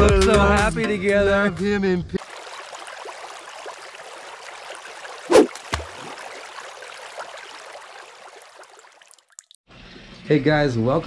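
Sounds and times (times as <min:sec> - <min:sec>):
running water stream hiss: 0:02.2 - 0:09.0.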